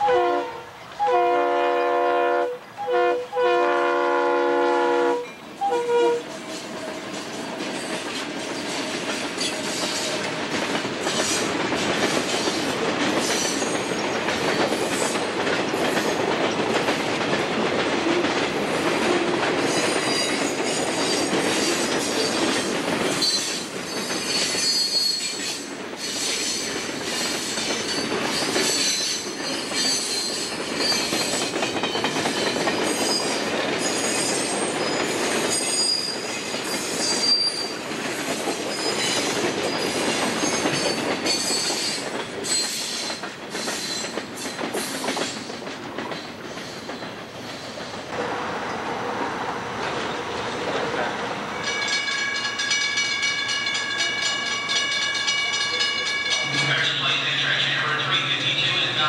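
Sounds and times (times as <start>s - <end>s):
train rolling past: 0.0s - 59.0s
wheels clicking over rail joints: 25.3s - 48.2s
high-pitched wheel squeal: 37.0s - 37.7s.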